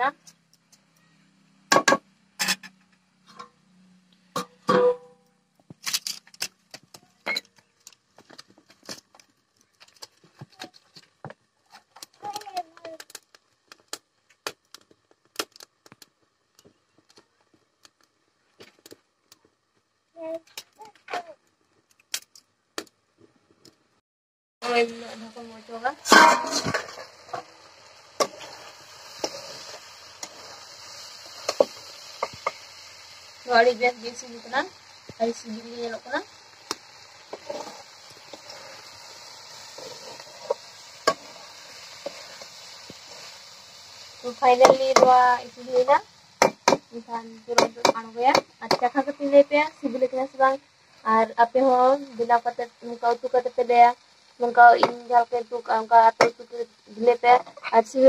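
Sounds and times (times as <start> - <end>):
faint sizzling hiss: 0.0 - 24.0, 24.6 - 58.0
wood fire crackling: 5.2 - 24.0, 24.6 - 58.0
vegetables frying: 5.7 - 22.4, 24.6 - 58.0
metal spatula stirring frying food: 26.0 - 50.4.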